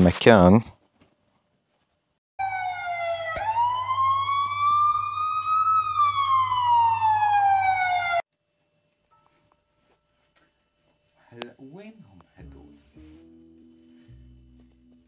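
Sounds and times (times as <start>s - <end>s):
police siren wailing: 2.4s - 8.2s.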